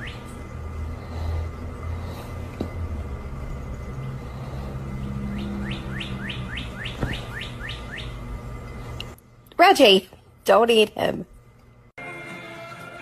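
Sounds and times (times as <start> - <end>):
low steady hum: 0.0 - 12.1
bird chirping rising notes: 4.8 - 8.7.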